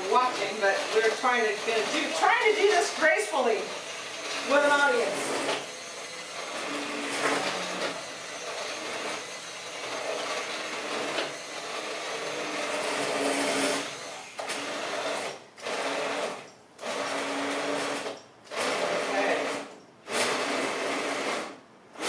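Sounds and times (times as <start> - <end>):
immersion blender whirring: 0.0 - 22.0.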